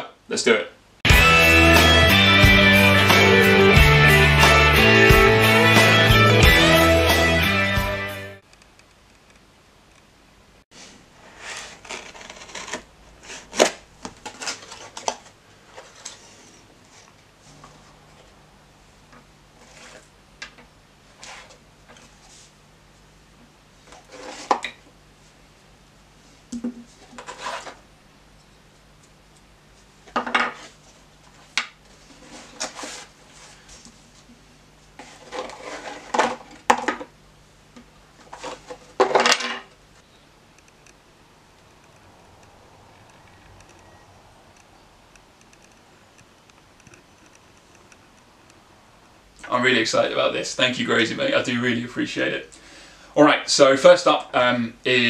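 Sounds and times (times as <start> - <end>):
cardboard box scraping and rustling: 10.8 - 13.7, 27.2 - 27.8, 35.0 - 36.6
cardboard packaging handling: 11.2 - 16.6, 31.9 - 33.8, 35.0 - 37.0.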